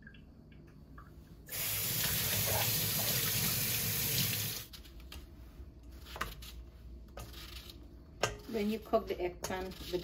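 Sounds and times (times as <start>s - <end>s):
kitchen faucet running: 1.5s - 4.7s.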